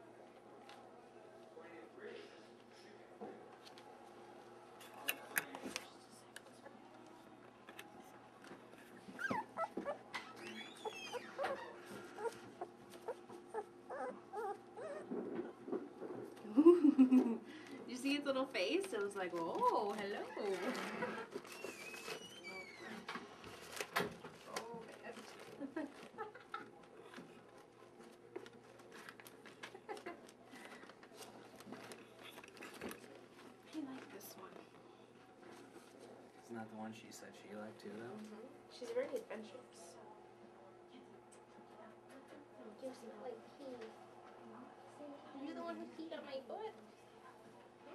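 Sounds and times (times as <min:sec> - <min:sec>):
faint rustling and crinkling: 0:00.2 - 0:16.5, 0:17.5 - 0:40.0, 0:40.9 - 0:44.8
puppy whining: 0:09.0 - 0:15.5
puppies squeaking and whimpering: 0:09.1 - 0:15.1.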